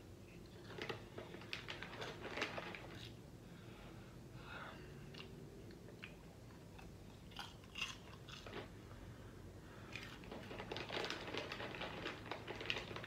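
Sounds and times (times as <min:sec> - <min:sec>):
person chewing popcorn: 0:05.1 - 0:08.8, 0:09.9 - 0:13.0.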